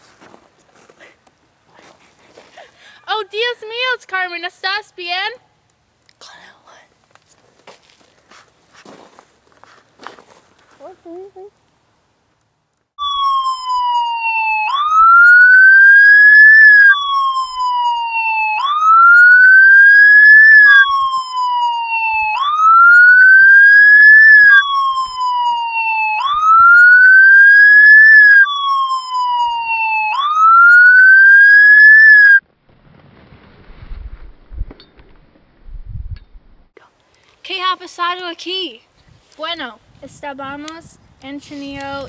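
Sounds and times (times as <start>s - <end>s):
emergency vehicle siren: 13.0s - 32.4s.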